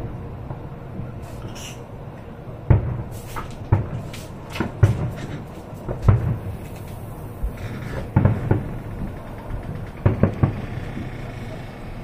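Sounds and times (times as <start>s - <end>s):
firework shells bursting: 0.0s - 11.4s
small firework pops: 2.7s - 11.1s.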